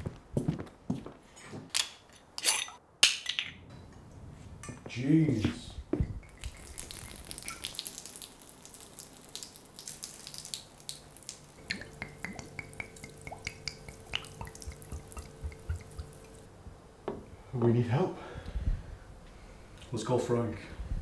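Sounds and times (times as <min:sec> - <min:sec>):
faint steady hum: 0:03.6 - 0:21.0
liquid pouring into a sink: 0:06.2 - 0:16.4.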